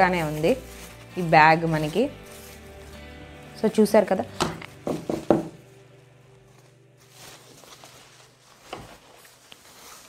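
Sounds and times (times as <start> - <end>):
nylon bag rustling: 0.0 - 10.0.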